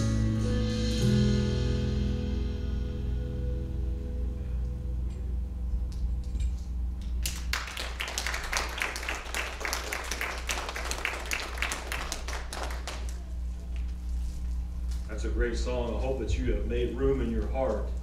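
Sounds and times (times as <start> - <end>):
steady low hum: 0.0 - 18.0
congregation applauding: 7.2 - 13.9.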